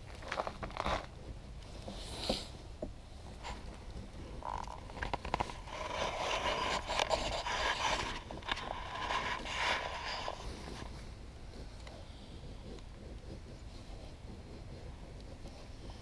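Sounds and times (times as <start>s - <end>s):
knife scraping wooden stick: 3.4s - 11.0s.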